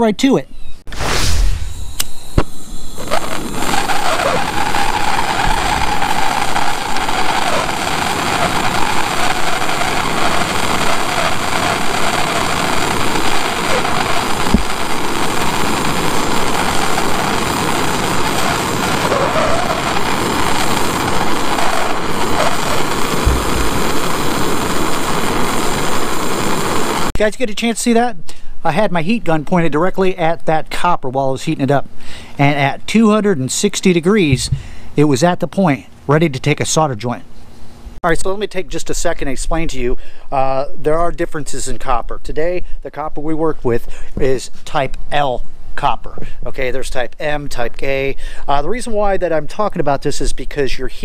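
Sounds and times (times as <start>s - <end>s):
torch flame roaring: 0.9s - 27.1s.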